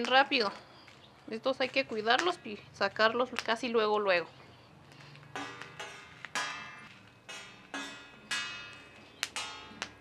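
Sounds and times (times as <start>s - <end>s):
sharp ringing metal taps: 5.3s - 10.0s.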